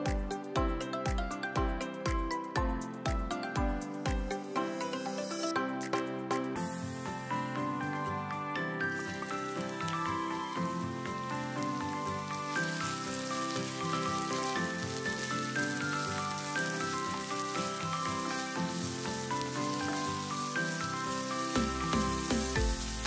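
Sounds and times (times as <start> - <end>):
background music: 0.0 - 23.0
onions sizzling in hot oil: 6.6 - 8.1, 8.7 - 23.0.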